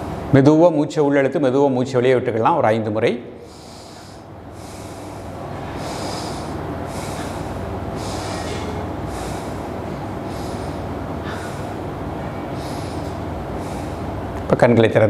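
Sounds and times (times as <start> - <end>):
steady low rumble: 3.2 - 14.6
man breathing through nose: 3.4 - 14.4.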